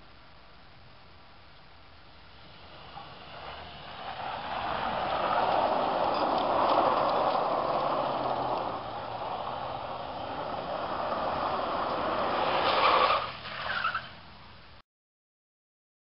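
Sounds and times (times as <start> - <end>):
tyres spinning on gravel: 2.1 - 14.4
engine running hard: 2.3 - 13.5.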